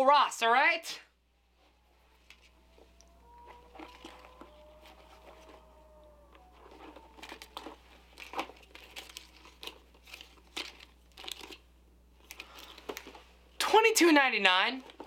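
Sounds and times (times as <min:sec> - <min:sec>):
plastic tags crinkling and rustling: 0:03.4 - 0:05.7, 0:06.3 - 0:13.4, 0:14.8 - 0:15.0.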